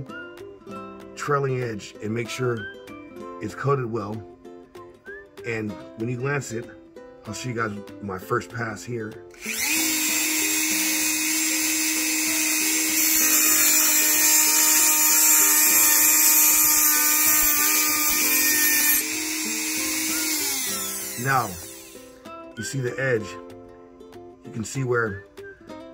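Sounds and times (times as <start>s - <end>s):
rotary tool running: 9.4s - 22.1s.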